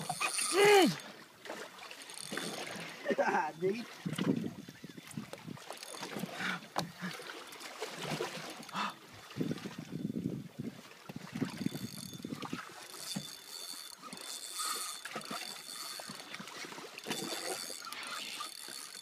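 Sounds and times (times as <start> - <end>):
water slapping boat hull: 0.0 - 19.0.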